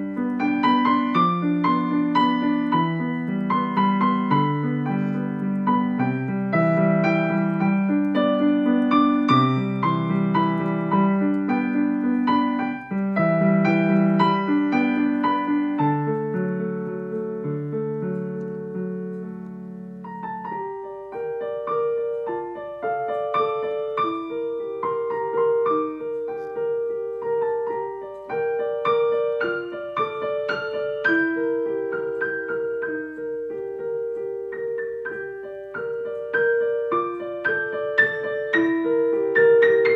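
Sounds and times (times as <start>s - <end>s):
digital piano playing: 0.0s - 39.9s.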